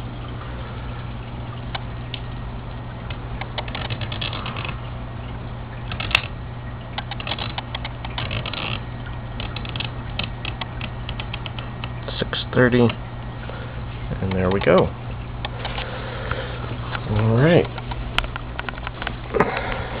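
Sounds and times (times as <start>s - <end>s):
steady low hum: 0.0s - 20.0s
dial timer ratcheting clicks: 3.4s - 4.8s, 5.9s - 6.3s, 7.0s - 8.8s, 9.4s - 12.0s.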